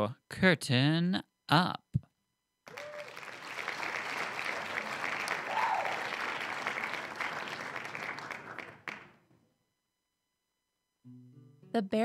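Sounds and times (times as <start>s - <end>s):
audience applause: 2.7s - 9.2s.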